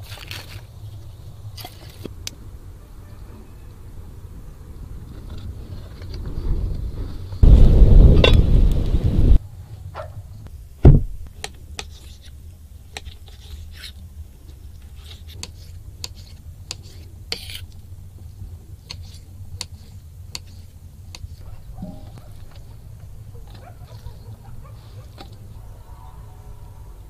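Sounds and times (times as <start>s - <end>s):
low steady hum: 7.4s - 27.0s
heavy thump of board set down: 10.8s - 11.2s.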